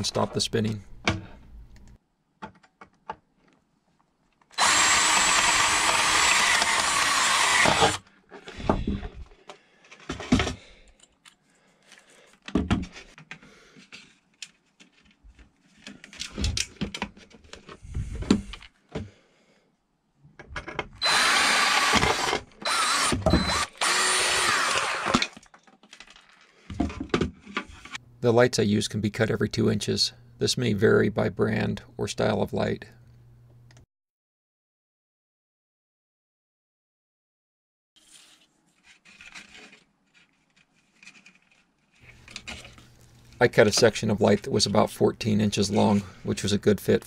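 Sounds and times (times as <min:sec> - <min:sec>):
cordless drill drilling metal: 0:04.6 - 0:08.0, 0:21.0 - 0:25.4.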